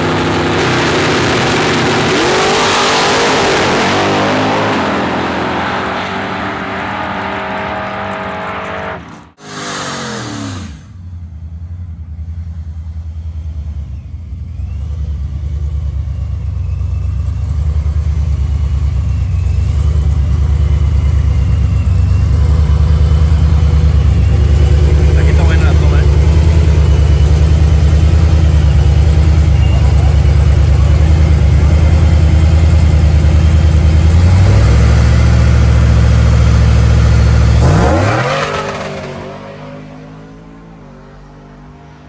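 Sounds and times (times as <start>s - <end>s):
truck engine revving high: 0.0s - 11.5s, 17.4s - 42.0s
engine pulsing idle: 10.7s - 37.7s.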